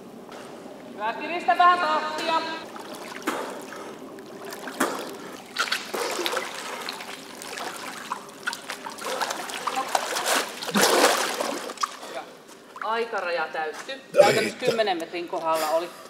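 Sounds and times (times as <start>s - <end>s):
swimmer splashing in pool: 2.2s - 12.1s.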